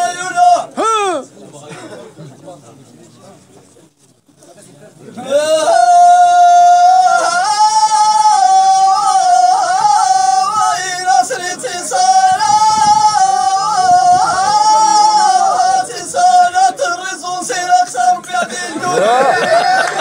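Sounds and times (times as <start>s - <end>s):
man singing unaccompanied chant: 0.0s - 0.8s, 5.2s - 20.0s.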